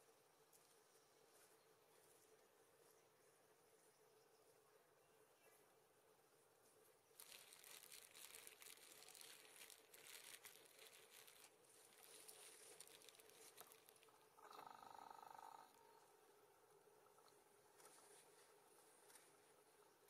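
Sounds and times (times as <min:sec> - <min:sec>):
soft buzzing rhythm: 0:00.0 - 0:20.0
faint crackling rustle: 0:06.4 - 0:14.7, 0:17.0 - 0:20.0.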